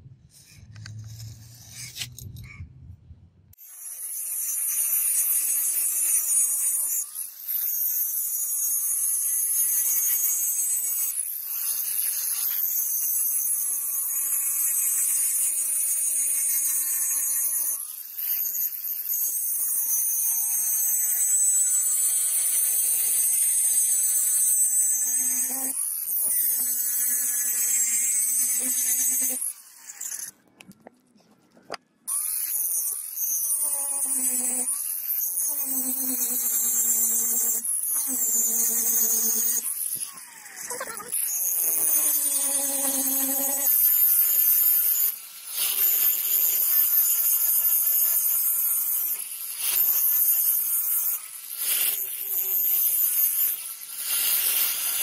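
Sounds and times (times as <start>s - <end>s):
angle grinder grinding steel: 0.3s - 2.5s, 3.6s - 30.4s, 32.1s - 55.0s.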